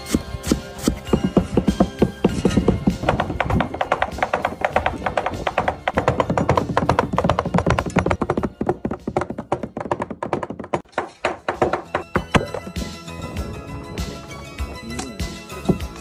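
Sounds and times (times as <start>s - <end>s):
cleavers chopping on wood: 0.0s - 12.8s
background music: 0.0s - 16.0s.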